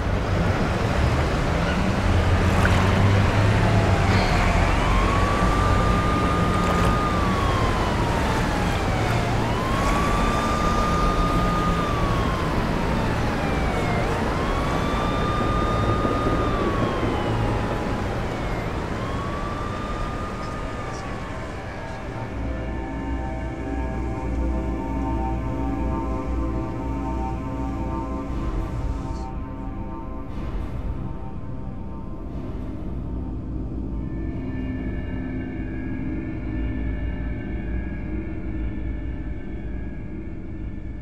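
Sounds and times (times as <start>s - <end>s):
steady low rumble: 0.0s - 41.0s
siren wailing: 1.4s - 29.4s.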